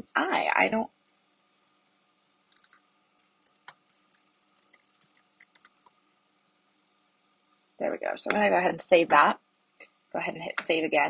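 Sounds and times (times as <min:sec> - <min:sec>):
typing on computer keyboard: 0:02.5 - 0:05.9.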